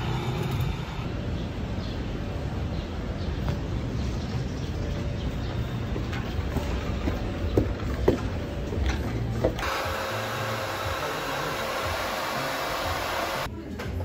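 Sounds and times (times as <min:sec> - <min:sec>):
hair dryer blowing: 0:09.6 - 0:13.5.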